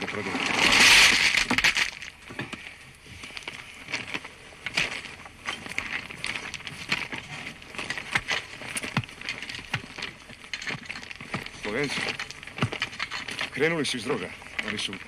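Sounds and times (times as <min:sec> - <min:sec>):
footsteps on forest floor: 0:00.0 - 0:15.0
light crackles and clicks: 0:01.1 - 0:15.0.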